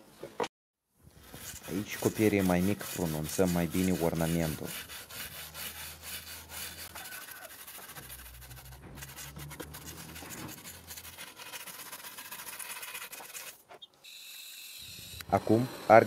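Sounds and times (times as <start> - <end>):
wire brush scratching wood: 1.1 - 13.9.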